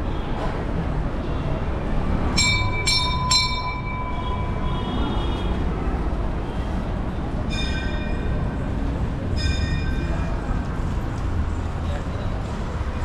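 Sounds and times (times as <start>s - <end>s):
temple bell ringing: 2.3s - 4.9s, 7.5s - 8.6s, 9.2s - 10.4s.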